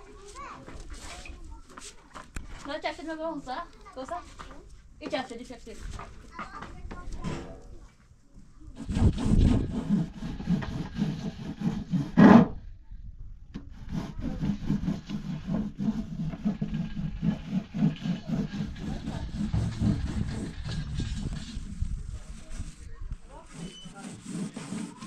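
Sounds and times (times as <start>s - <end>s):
hand scraping flour through sieve: 8.8s - 12.4s, 13.7s - 25.0s.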